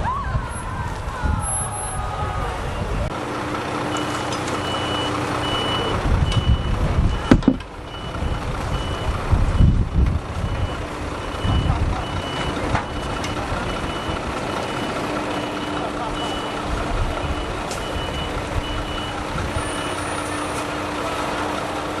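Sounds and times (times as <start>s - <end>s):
lorry engine running: 0.5s - 22.0s
reversing alarm beeping: 3.9s - 9.8s, 10.4s - 20.6s.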